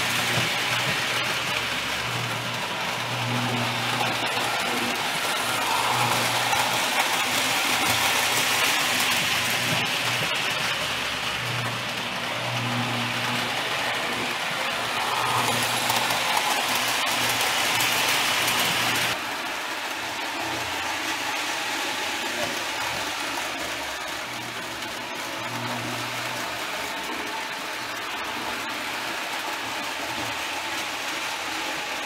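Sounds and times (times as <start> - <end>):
wheels rattling on rails: 0.0 - 25.4
toy train motor hum: 0.0 - 32.0.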